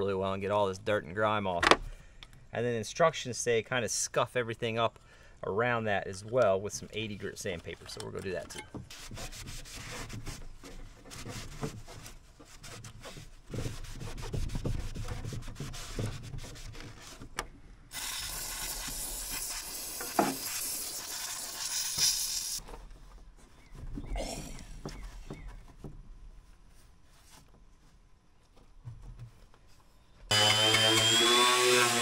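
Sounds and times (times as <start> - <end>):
rag rubbing over surface: 8.9 - 17.2
sandpaper scratching fiberglass: 8.9 - 17.3, 17.9 - 22.6
aerosol can spraying: 17.9 - 22.6.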